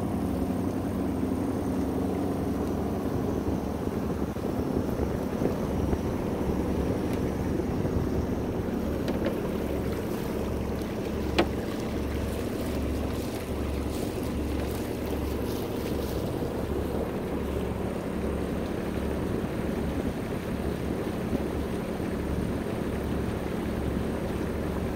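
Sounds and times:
diesel engine throbbing: 0.0s - 24.9s
water rushing along hull: 0.0s - 24.9s
wind on microphone: 2.8s - 17.2s.

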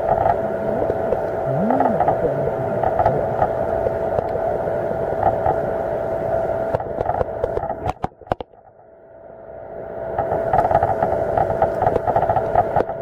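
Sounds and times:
underwater boat engine whine: 0.0s - 6.7s
crackling noise: 0.0s - 8.3s.

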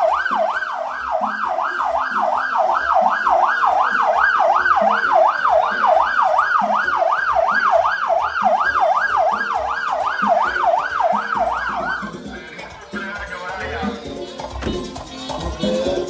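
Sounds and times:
electronic siren yelping: 0.0s - 12.4s.

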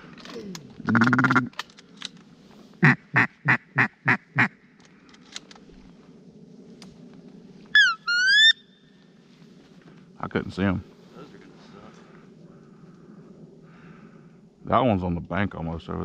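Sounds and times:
duck quacking: 0.9s - 1.5s, 2.8s - 4.5s
duck squealing: 7.8s - 8.6s.

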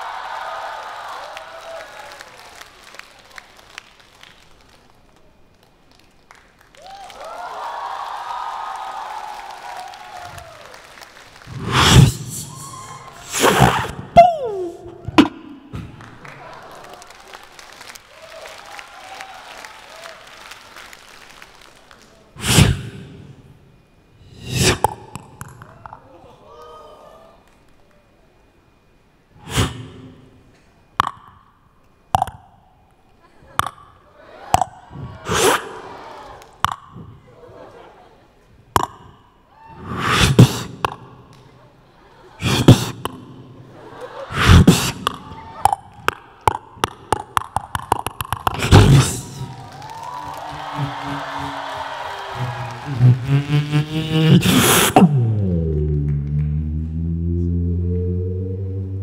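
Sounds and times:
beatbox breath whooshes: 11.6s - 14.0s, 22.4s - 23.0s, 24.2s - 25.0s, 39.9s - 40.9s, 53.3s - 55.2s
person beatboxing into a microphone: 24.3s - 25.7s, 39.9s - 41.0s, 42.4s - 43.2s, 44.3s - 49.5s, 52.4s - 55.2s.

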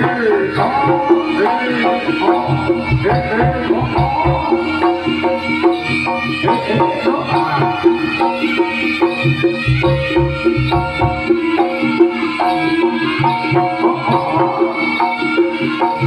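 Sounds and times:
hand drums: 0.0s - 16.0s
struck metal percussion: 0.0s - 16.0s
wavering melodic line: 0.0s - 16.0s.

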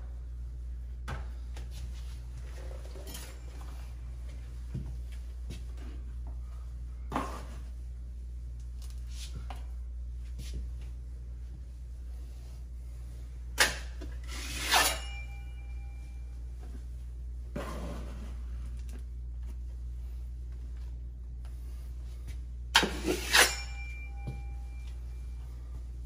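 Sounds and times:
steady low hum: 0.0s - 26.0s
knife scraping wallpaper: 14.2s - 15.2s, 22.8s - 23.8s.

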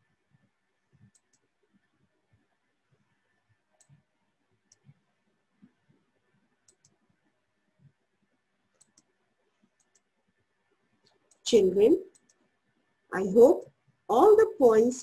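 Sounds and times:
computer mouse clicks: 1.0s - 1.9s, 3.8s - 5.0s, 6.6s - 7.0s, 8.7s - 10.1s, 12.1s - 12.4s.

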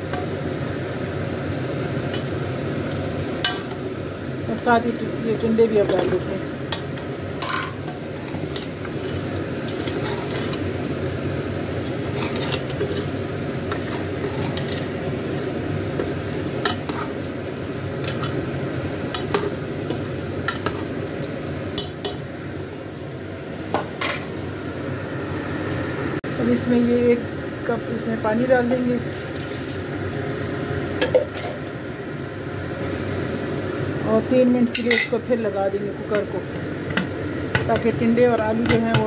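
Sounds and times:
ladle clinking and scraping pot: 6.7s - 10.8s, 11.8s - 15.1s, 18.0s - 18.4s.

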